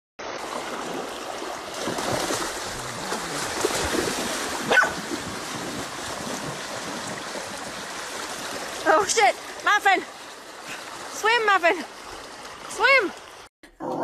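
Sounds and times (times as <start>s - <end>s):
creek water rushing: 0.2s - 13.5s
dog yelping: 4.7s - 5.0s.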